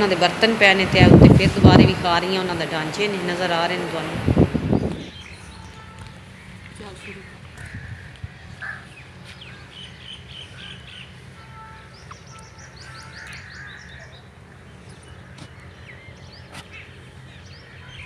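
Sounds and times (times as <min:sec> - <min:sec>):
steady low rumble: 0:00.0 - 0:18.0
small birds chirping: 0:04.7 - 0:18.0.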